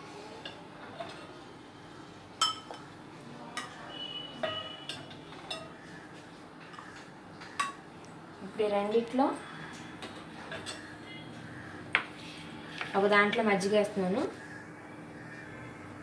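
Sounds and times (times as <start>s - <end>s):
ladle clinking against glasses: 3.6s - 5.7s.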